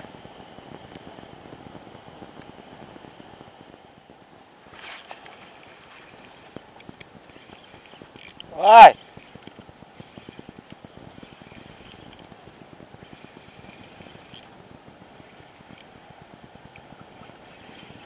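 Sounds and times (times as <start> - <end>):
light reel clicks: 4.8 - 14.6, 15.2 - 16.0
fishing reel ticking: 4.8 - 18.0.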